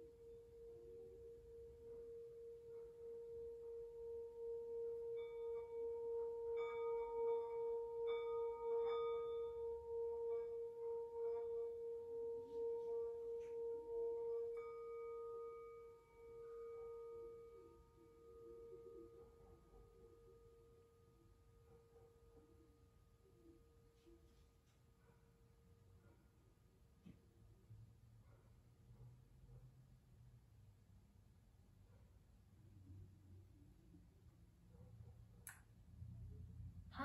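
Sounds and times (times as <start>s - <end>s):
singing bowl ringing hum: 0.0s - 26.3s.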